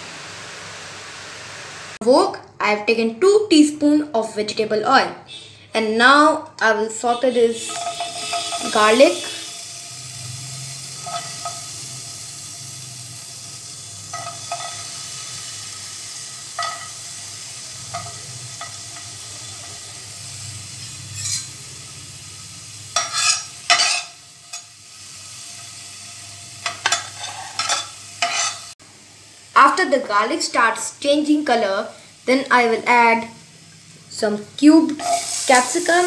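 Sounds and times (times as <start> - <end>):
garlic sizzling in hot oil: 0.0 - 2.0, 6.9 - 36.0
spatula knocking and scraping pan: 7.6 - 9.4, 14.1 - 14.8, 16.6 - 17.0, 23.0 - 24.6, 26.6 - 28.7.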